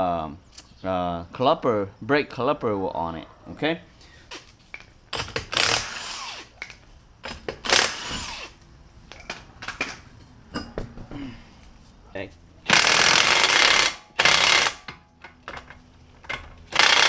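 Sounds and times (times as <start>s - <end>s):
impact wrench running: 5.1s - 6.6s, 7.2s - 8.6s, 12.7s - 17.0s.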